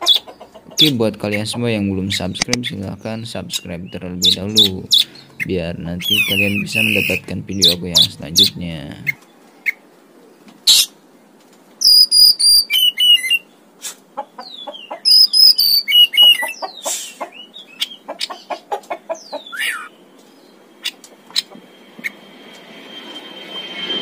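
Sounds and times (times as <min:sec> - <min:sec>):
bird chattering calls: 0:00.0 - 0:09.8, 0:11.8 - 0:13.5, 0:14.2 - 0:21.6
bird singing whistled phrases: 0:03.8 - 0:08.5, 0:11.8 - 0:13.5, 0:15.1 - 0:16.6, 0:19.4 - 0:20.0.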